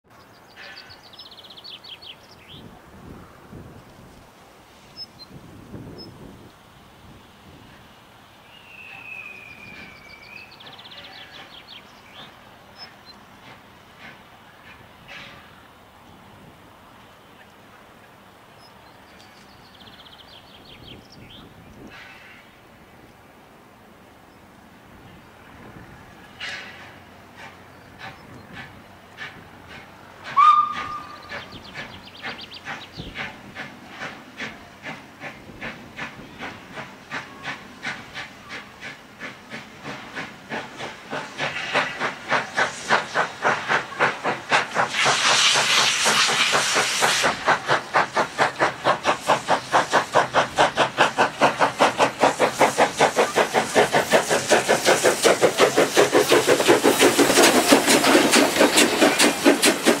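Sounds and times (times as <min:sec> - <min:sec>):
steam hissing: 0:04.5 - 0:15.6, 0:25.5 - 1:00.0
steam locomotive whistle: 0:08.5 - 0:10.5, 0:30.4 - 0:31.3
steam locomotive exhaust chuffing: 0:25.6 - 1:00.0.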